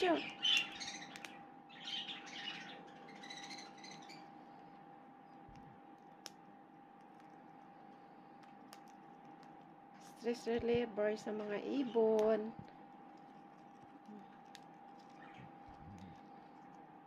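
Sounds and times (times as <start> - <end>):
cockatiels chirping: 0.0 - 4.4, 15.0 - 15.6
faint steady hum: 0.0 - 17.0.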